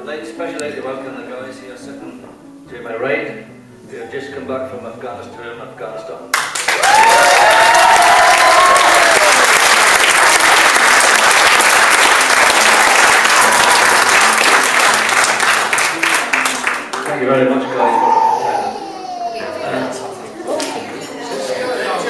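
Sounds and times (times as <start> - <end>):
crowd applauding: 6.3 - 18.3
people cheering: 6.7 - 15.1, 17.5 - 19.6.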